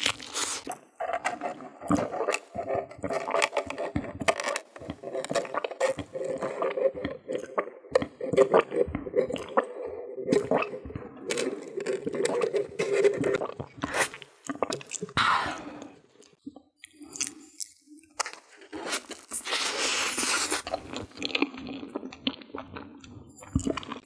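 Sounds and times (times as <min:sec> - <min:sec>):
sipping through a straw: 0:00.0 - 0:16.0, 0:18.8 - 0:21.9
wet mouth clicks: 0:00.0 - 0:18.2, 0:20.4 - 0:24.0.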